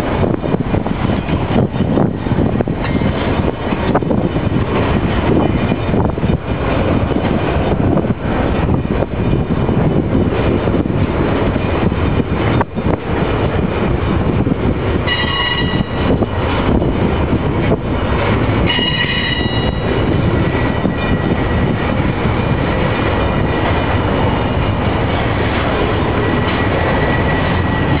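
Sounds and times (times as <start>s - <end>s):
train wheels rumbling on rail: 0.0s - 28.0s
high-pitched wheel squeal: 15.1s - 16.0s, 18.7s - 19.9s.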